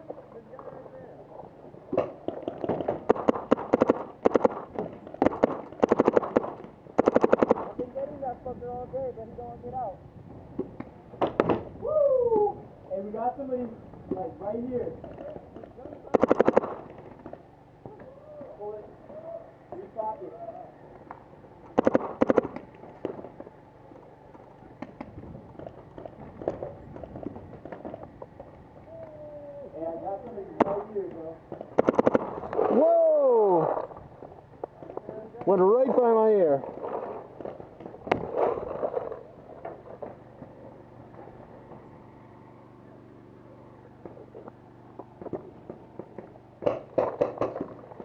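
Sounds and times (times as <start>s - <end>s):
paintball markers firing: 1.9s - 8.0s, 15.0s - 17.4s, 21.7s - 23.4s, 30.2s - 32.8s, 45.2s - 48.0s.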